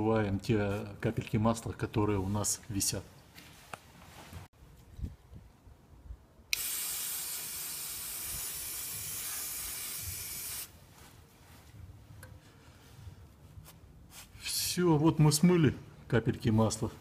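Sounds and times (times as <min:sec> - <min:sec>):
aerosol spray hiss: 0:06.5 - 0:10.8.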